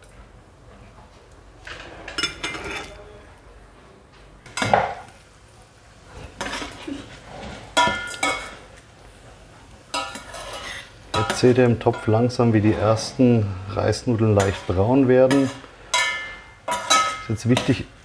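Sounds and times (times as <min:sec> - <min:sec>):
metal spoon scraping pot: 0:09.9 - 0:13.2, 0:14.3 - 0:17.8.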